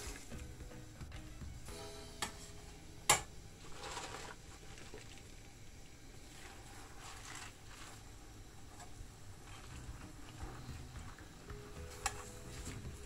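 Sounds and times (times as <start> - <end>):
wet handling of leaves: 3.6 - 5.5, 6.2 - 8.2.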